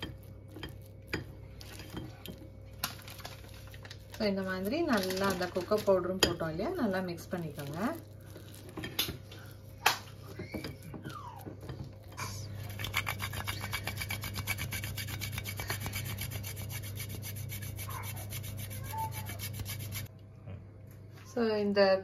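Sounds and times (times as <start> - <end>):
chocolate rasping on metal grater: 3.8 - 9.0, 12.5 - 20.1.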